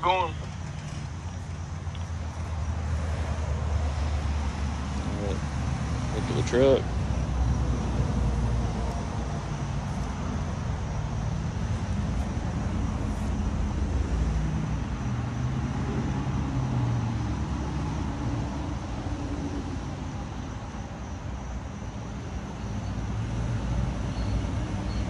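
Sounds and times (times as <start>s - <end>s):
vehicle engine droning under load: 0.0s - 25.0s.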